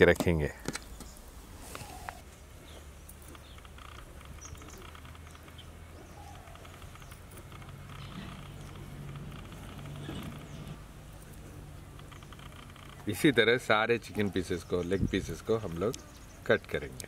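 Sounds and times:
birds chirping: 0.0s - 17.0s
insects: 3.3s - 5.7s, 11.3s - 13.4s.

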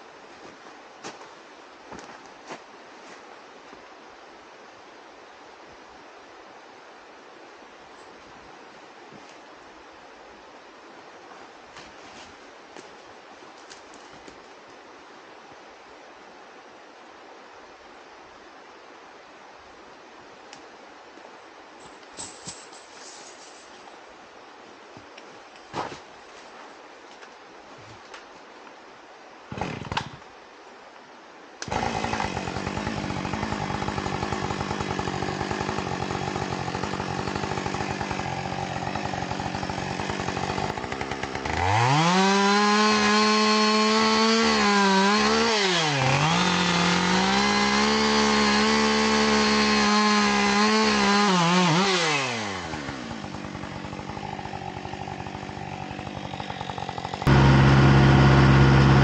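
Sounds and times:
chainsaw idling and revving: 31.6s - 59.0s
engine with low hum: 52.6s - 59.0s.

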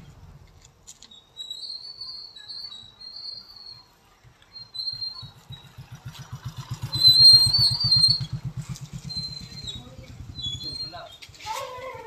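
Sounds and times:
engine running with rapid beat: 5.2s - 10.4s.

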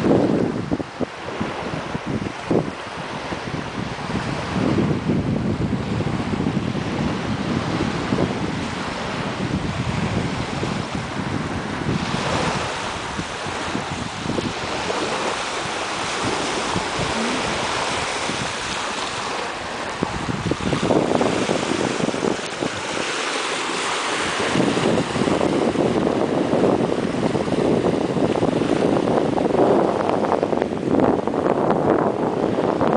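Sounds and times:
wind buffeting microphone: 0.0s - 32.9s
waves washing onto pebbles: 10.4s - 30.6s.

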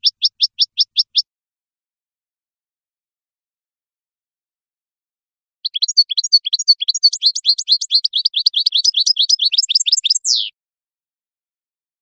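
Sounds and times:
finch singing high twittering notes: 0.0s - 1.2s, 5.6s - 10.5s.

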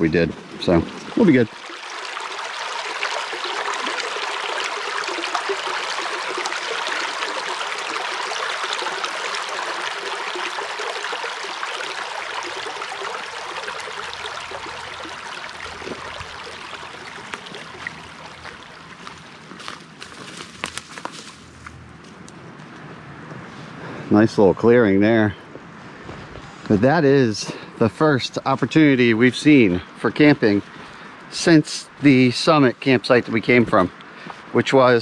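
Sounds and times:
stream babbling over stones: 0.0s - 20.2s.

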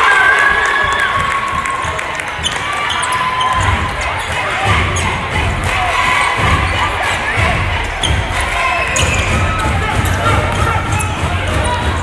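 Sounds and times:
spectators chatter echoing: 0.0s - 12.0s
basketball bouncing: 0.9s - 12.0s
sneakers squeaking on court: 2.3s - 5.2s.

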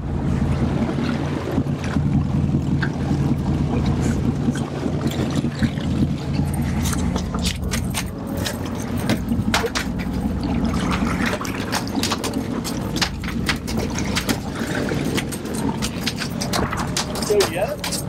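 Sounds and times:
boat engine droning: 0.0s - 18.0s
gear clicking and knocking: 10.9s - 18.0s.

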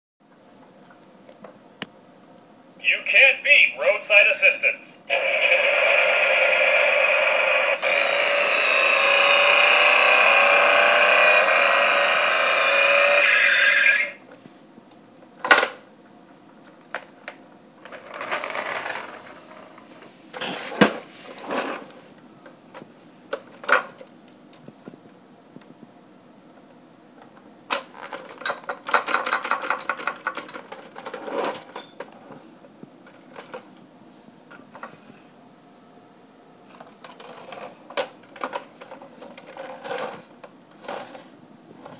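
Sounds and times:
toy car electronic engine sound: 5.1s - 14.2s
small motor and gears ticking: 7.8s - 13.5s.

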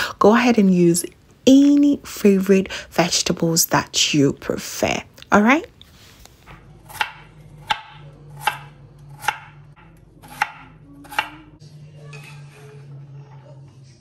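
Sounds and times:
knife chopping on cutting board: 6.4s - 11.4s.

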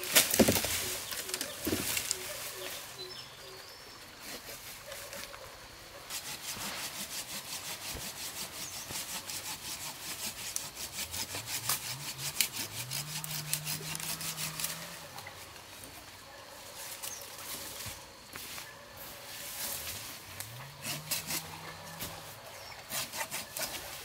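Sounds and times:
hand saw cutting wood: 6.1s - 15.2s, 20.4s - 24.0s.

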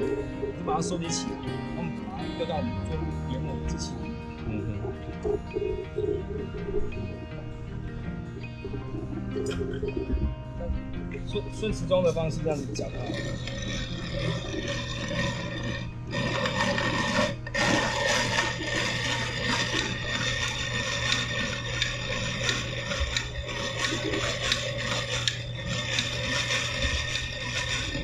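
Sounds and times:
hand grinder crushing cocoa nibs: 12.7s - 28.0s.

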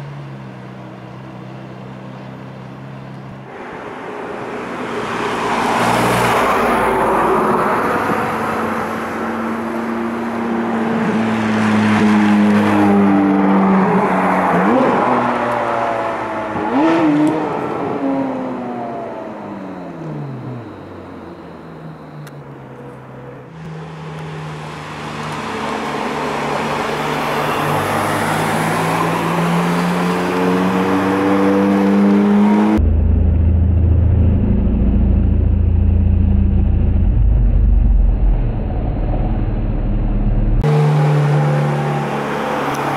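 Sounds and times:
car engine accelerating hard: 23.6s - 42.9s.

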